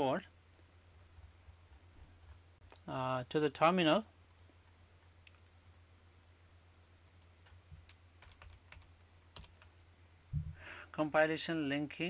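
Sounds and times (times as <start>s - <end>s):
low steady hum: 0.0s - 12.0s
computer keyboard clicks: 7.8s - 9.7s.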